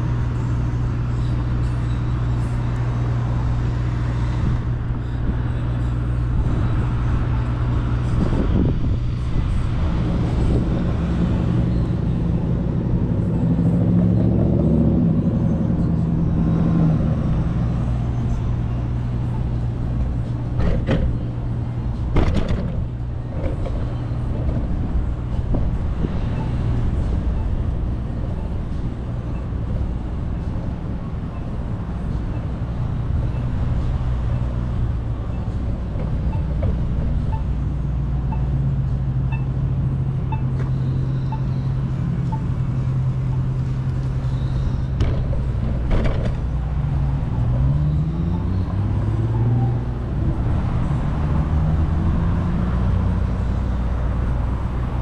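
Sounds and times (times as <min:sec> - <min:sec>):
low rumble of traffic: 0:00.0 - 0:55.0
engine rising and falling in pitch: 0:05.8 - 0:22.8, 0:45.9 - 0:55.0.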